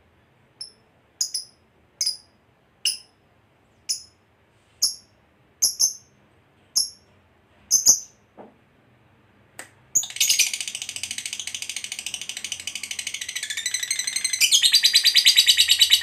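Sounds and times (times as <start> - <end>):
bird chattering trill: 0.6 - 2.2, 5.6 - 6.1, 10.0 - 16.0
bird chirping sharply: 4.8 - 6.1, 7.7 - 8.2, 10.0 - 16.0.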